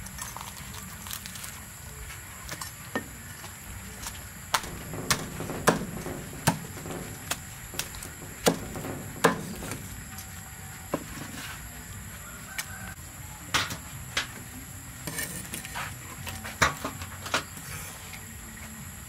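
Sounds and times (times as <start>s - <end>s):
cleaver chopping on wooden block: 4.5s - 9.8s.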